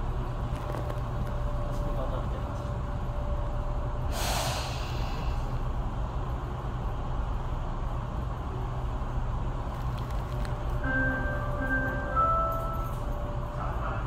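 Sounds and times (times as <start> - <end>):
brief hiss: 4.1 - 5.5.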